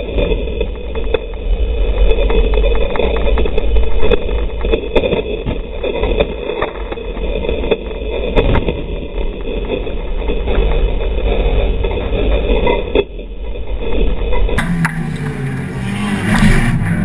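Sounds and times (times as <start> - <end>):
car engine running hard: 14.6 - 17.0
dirt hitting car: 14.6 - 17.0.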